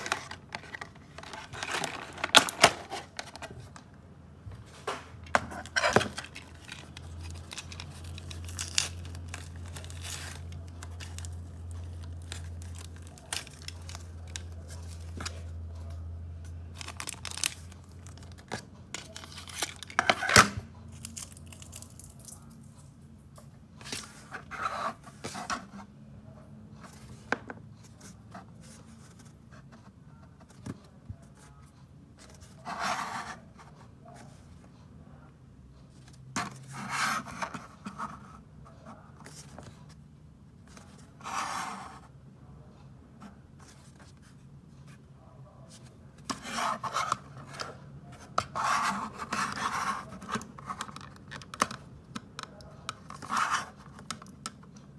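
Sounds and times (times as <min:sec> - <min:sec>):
hands handling packaging: 0:00.0 - 0:03.9, 0:05.2 - 0:15.6, 0:16.7 - 0:22.4.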